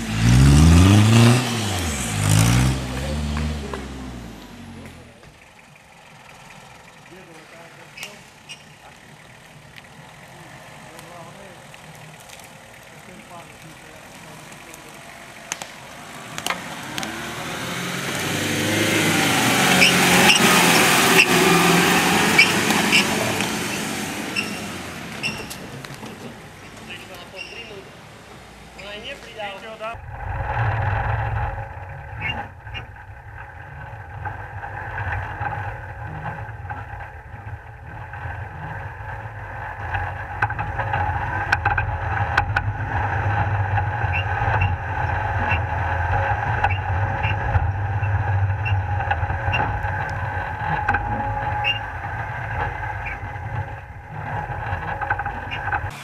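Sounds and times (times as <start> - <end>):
engine rumbling under load: 0.0 - 56.0
knocks and clatters: 30.4 - 55.9.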